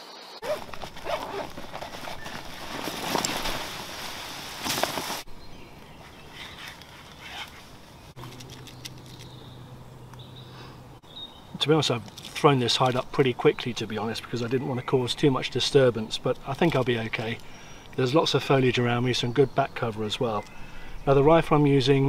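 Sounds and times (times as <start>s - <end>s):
net rustling and crackling: 0.4s - 5.3s.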